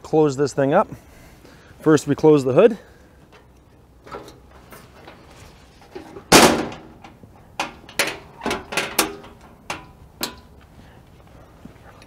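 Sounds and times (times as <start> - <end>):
metal engine hood slamming: 6.0 - 10.4.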